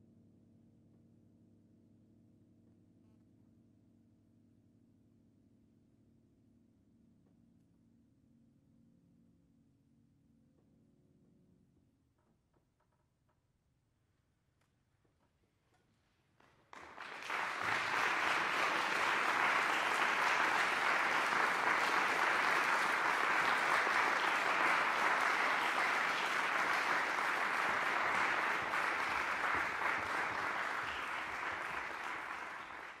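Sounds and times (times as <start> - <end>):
audience applauding: 16.7 - 33.0.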